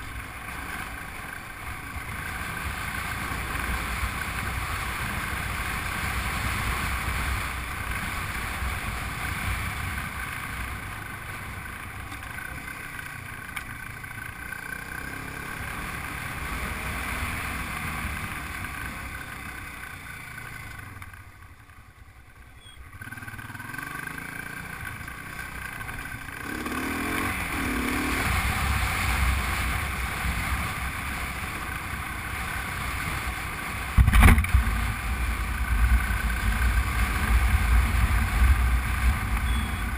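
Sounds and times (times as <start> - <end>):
motorcycle engine running: 0.0 - 39.9
riding rumble: 0.0 - 39.9
wind: 0.0 - 39.9
sharp knock: 34.0 - 34.6.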